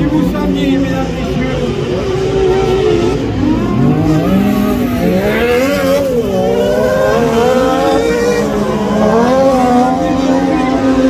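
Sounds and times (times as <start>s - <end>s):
racing buggy engines revving: 0.0s - 11.0s.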